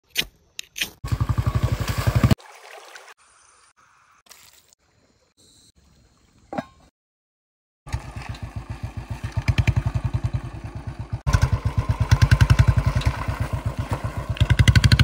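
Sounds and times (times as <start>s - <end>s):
outdoor noise: 0.0s - 6.9s, 7.9s - 15.0s
engine chugging: 1.0s - 2.4s, 7.9s - 15.0s
water trickling: 2.0s - 3.7s.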